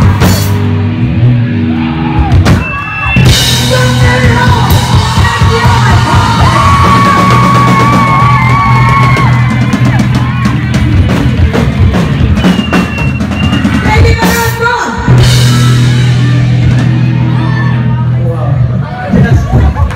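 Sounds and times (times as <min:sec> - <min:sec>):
drum hits and cymbal crashes: 0:00.0 - 0:01.0, 0:02.2 - 0:17.1
live rock band playing: 0:00.0 - 0:19.9.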